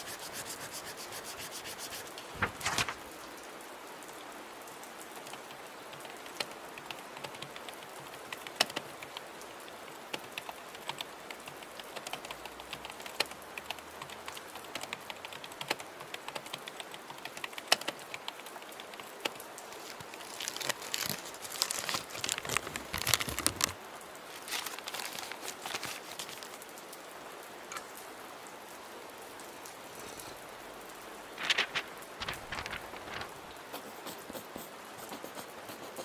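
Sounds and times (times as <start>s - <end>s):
paper rustling: 0.0s - 3.4s, 19.6s - 26.6s, 31.0s - 33.9s
rain hiss: 0.0s - 36.0s.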